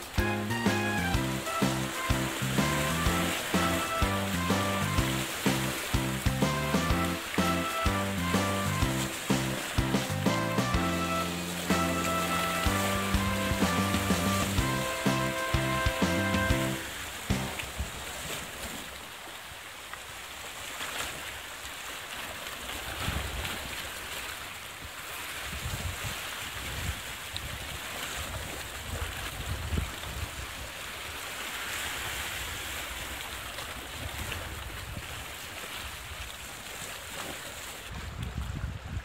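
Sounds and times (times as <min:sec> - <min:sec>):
waves washing against rocks: 0:01.3 - 0:08.0, 0:08.6 - 0:19.0
wind buffeting microphone: 0:28.4 - 0:30.5, 0:37.9 - 0:39.0.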